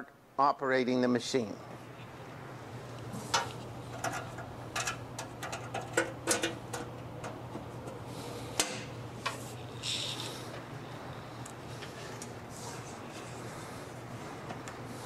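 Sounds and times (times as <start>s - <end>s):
steady low hum: 0.0s - 15.0s
metal clicks and clatters: 3.3s - 7.4s.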